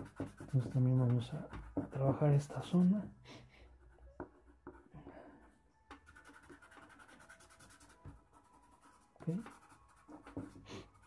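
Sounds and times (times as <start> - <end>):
charcoal scratching on paper: 0.0 - 2.9, 5.5 - 11.0
hand rubbing paper: 6.0 - 11.0.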